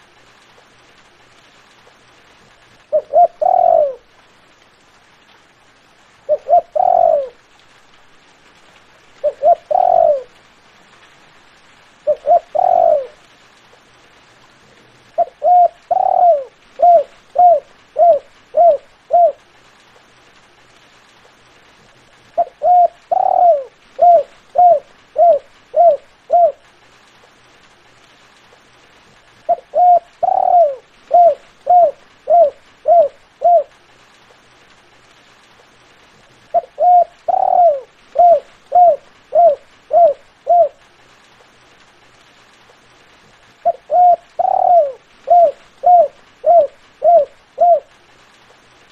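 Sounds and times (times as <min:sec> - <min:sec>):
dove cooing: 0:02.9 - 0:04.1, 0:06.2 - 0:07.4, 0:09.2 - 0:10.4, 0:12.0 - 0:13.3, 0:15.2 - 0:19.4, 0:22.4 - 0:26.7, 0:29.5 - 0:33.8, 0:36.5 - 0:40.8, 0:43.6 - 0:48.0.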